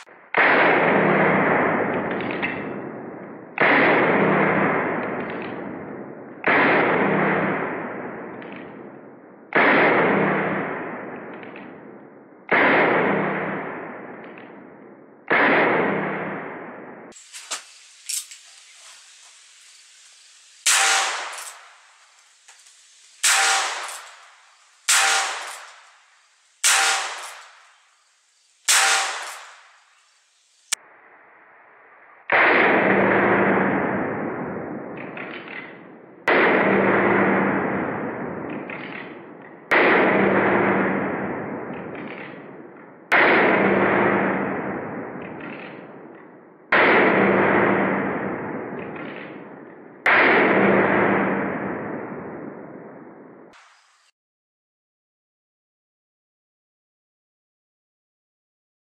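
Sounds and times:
dull low gunshot booms: 0.0 - 17.2, 20.6 - 21.7, 23.2 - 25.9, 26.6 - 27.7, 28.7 - 29.8, 32.3 - 53.5
handgun shots cracking: 17.3 - 18.4, 20.7 - 21.7, 23.2 - 24.2, 24.9 - 25.8, 26.6 - 27.6, 28.7 - 29.6.

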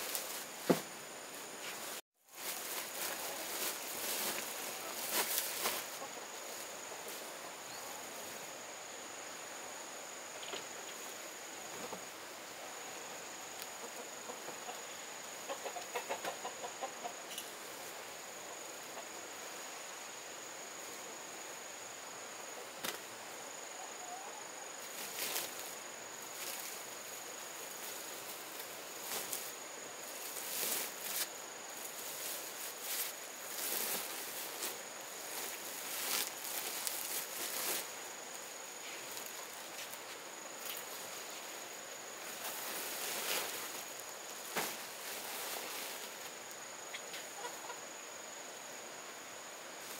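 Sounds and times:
high insect drone: 0.0 - 49.9
rustling and knocks: 0.6 - 1.0
clucking animal calls: 13.8 - 17.4, 46.9 - 47.8.

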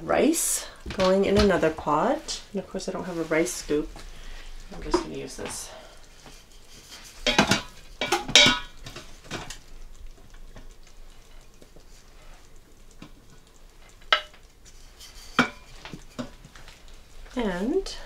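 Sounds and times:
wooden spoon scraping metal pot: 4.8 - 9.6, 13.9 - 16.4.

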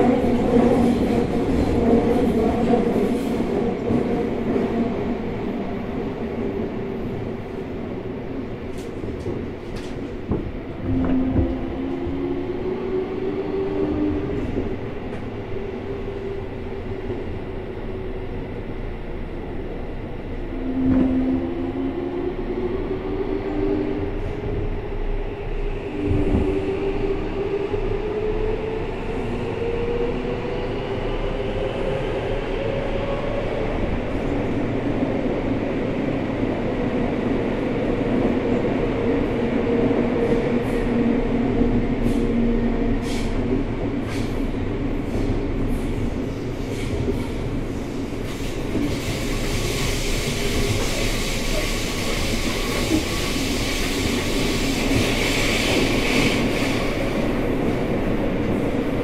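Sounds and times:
rail noise: 0.0 - 59.0
hiss: 48.2 - 57.0.

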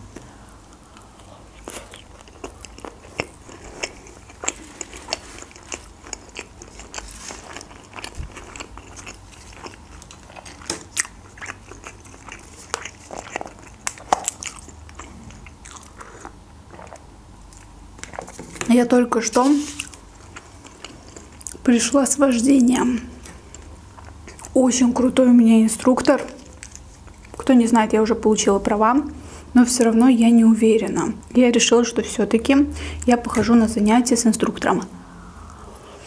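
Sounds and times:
close chewing with mouth clicks: 0.1 - 18.6, 19.8 - 21.7, 23.2 - 24.6, 25.9 - 27.5.

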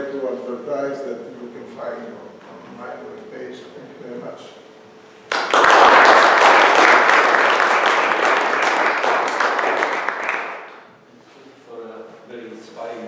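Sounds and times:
audience applauding: 5.3 - 10.8.

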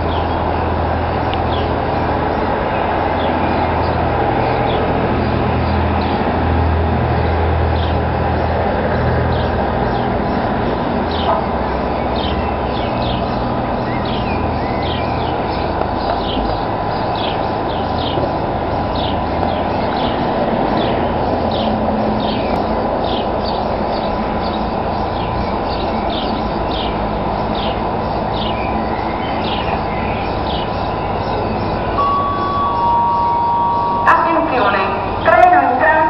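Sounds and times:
small birds chirping: 0.0 - 36.0
faint steady tone: 32.0 - 35.1.

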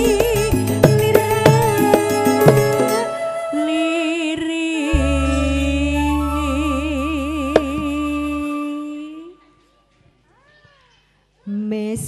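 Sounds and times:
woman singing a long note: 0.0 - 9.5
deep sustained bass note: 4.9 - 8.8.

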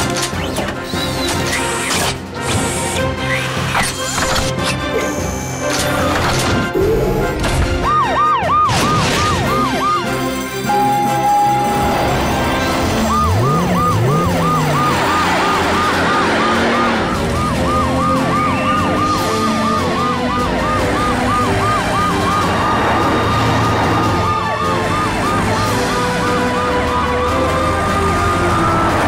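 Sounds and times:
sirens wailing: 4.8 - 29.0
cartoon sirens yelping: 7.8 - 29.0.

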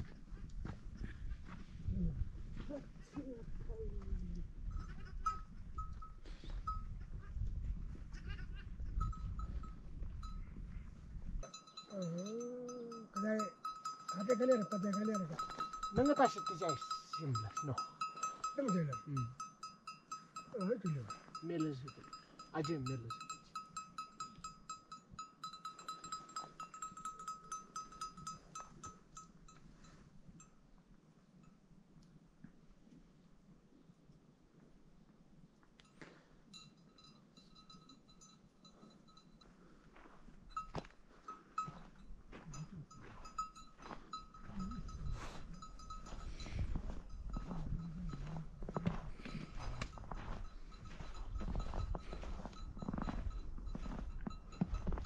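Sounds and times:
sheep bells clinking: 4.6 - 7.2, 8.2 - 10.8, 11.4 - 30.8, 35.8 - 55.0.

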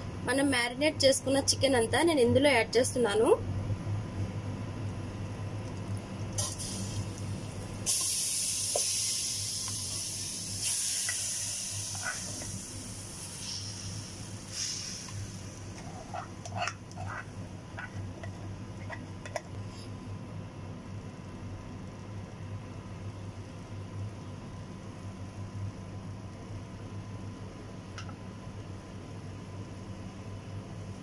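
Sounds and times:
chicken sizzling in hot pot: 5.8 - 18.1
plastic spatula scraping: 15.7 - 19.4.

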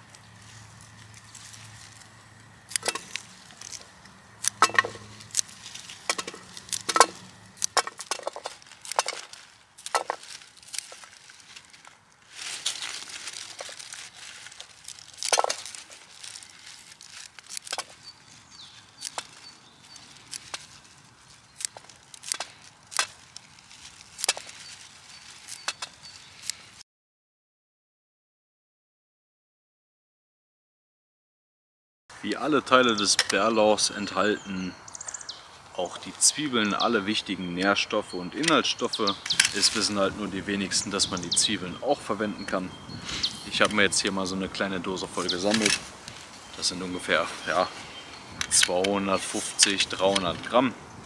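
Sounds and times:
scissors snipping bulbs: 0.0 - 26.8, 45.1 - 47.7, 48.4 - 50.4.

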